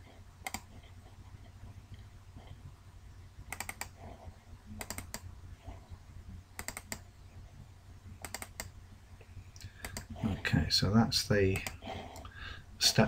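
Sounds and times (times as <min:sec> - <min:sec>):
faint low hum: 0:00.0 - 0:13.0
computer mouse buttons clicking: 0:00.4 - 0:00.8, 0:03.5 - 0:04.0, 0:04.8 - 0:05.3, 0:06.6 - 0:07.1, 0:08.2 - 0:08.8, 0:09.6 - 0:10.1, 0:11.5 - 0:12.3.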